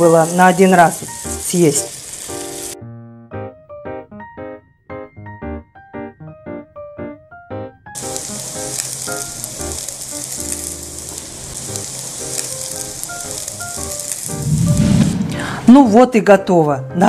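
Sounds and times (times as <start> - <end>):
pancakes sizzling in hot oil: 0.0 - 2.8, 8.0 - 14.8
light piano music: 0.0 - 17.0.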